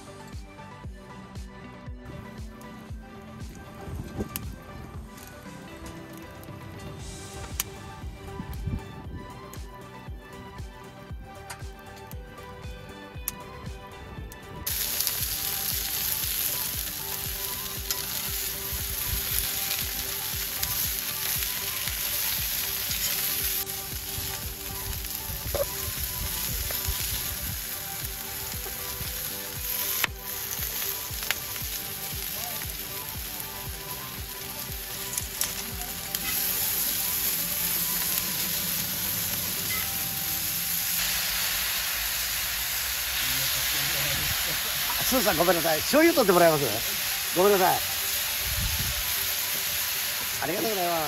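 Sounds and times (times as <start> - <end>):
pods sizzling in a steel pan: 14.7 - 51.0.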